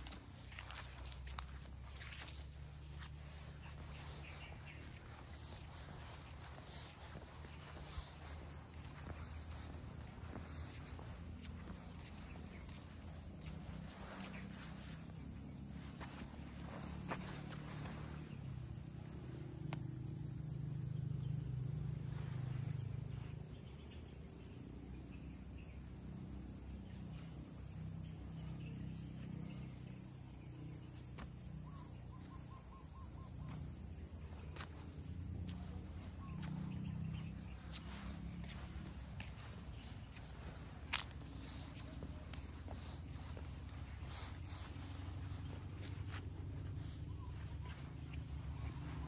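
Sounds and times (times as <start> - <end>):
soft footsteps: 0.0 - 18.8, 30.6 - 49.0
insect chorus: 0.0 - 49.0.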